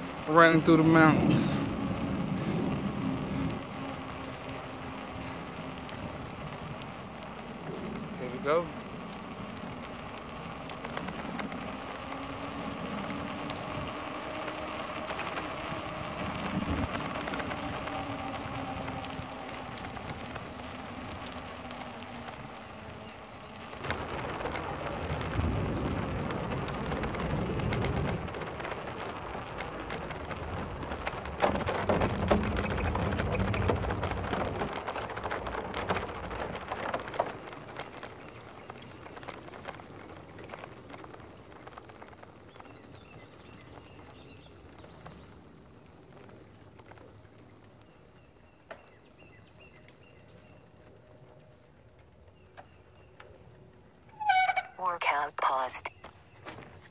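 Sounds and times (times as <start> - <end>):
bicycle tyre hum on pavement: 0.0 - 56.9
tyres rattling over wooden planks: 7.2 - 49.2.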